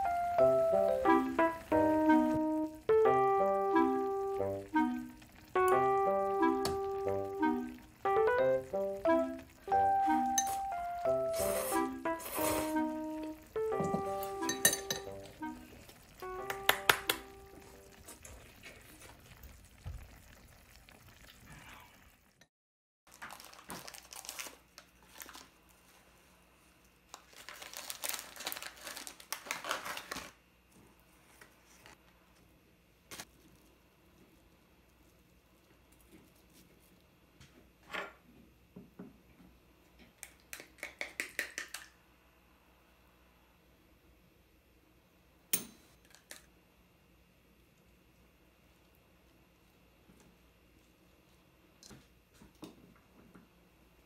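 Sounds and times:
soft background music: 0.0s - 18.0s
plastic packet crinkling: 23.1s - 25.6s, 27.1s - 30.4s.

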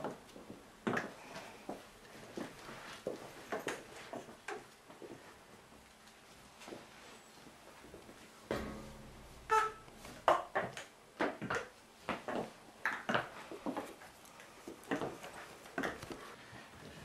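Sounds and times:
sharp knocks and clatters: 8.5s - 13.3s.

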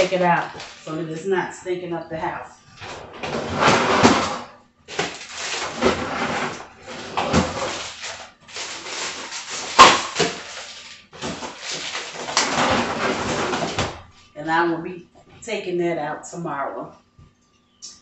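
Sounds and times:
rustling and handling noises: 0.0s - 1.5s, 4.9s - 14.4s
freezer door shutting: 2.8s - 14.1s.

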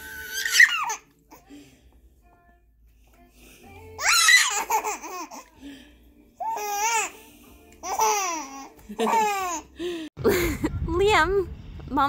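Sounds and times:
baby laughing and squealing: 0.0s - 1.4s, 4.0s - 5.5s, 6.4s - 7.2s, 7.8s - 9.7s.

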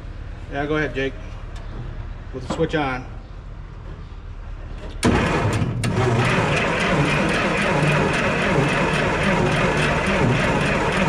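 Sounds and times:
engine cranking over by starter: 5.0s - 11.0s.

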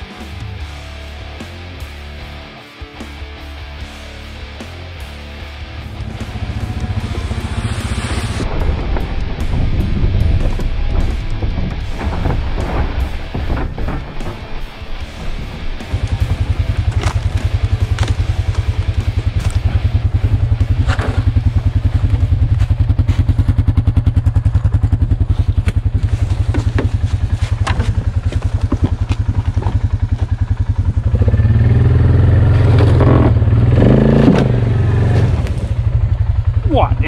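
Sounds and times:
atv engine idling: 3.8s - 8.3s, 15.8s - 37.0s.

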